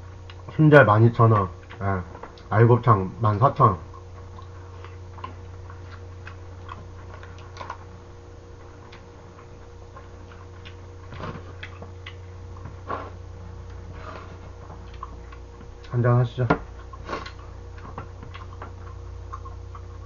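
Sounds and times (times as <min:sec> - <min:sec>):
low electrical hum: 0:00.0 - 0:20.0.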